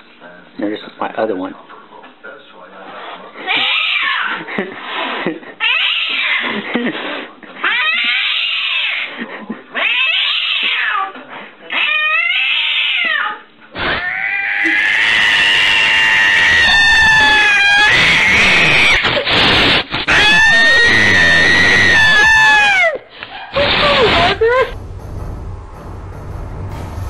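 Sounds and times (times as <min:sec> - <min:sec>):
cat growling yowl: 0:03.4 - 0:04.4, 0:11.7 - 0:24.8
cat yowling: 0:03.4 - 0:04.4, 0:05.6 - 0:06.5, 0:07.6 - 0:09.1, 0:09.8 - 0:11.1, 0:11.7 - 0:19.1, 0:20.1 - 0:23.0.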